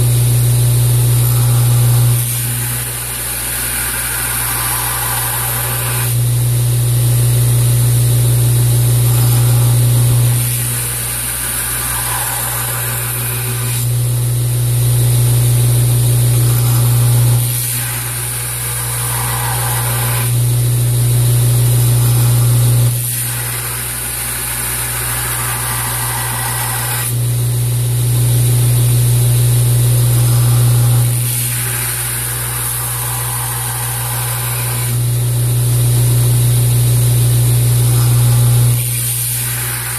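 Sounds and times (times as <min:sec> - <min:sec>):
belt grinder motor hum: 0:00.0 - 0:39.9.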